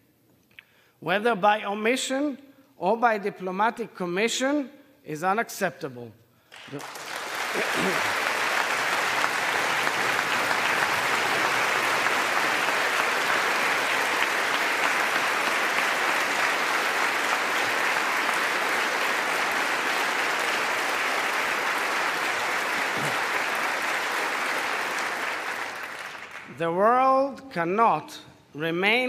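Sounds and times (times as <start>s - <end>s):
crowd clapping: 6.5s - 26.6s.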